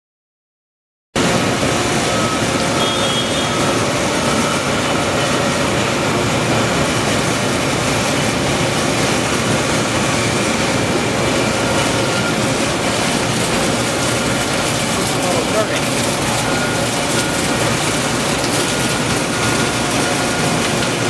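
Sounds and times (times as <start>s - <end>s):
gear shaper machine running: 1.2s - 21.0s.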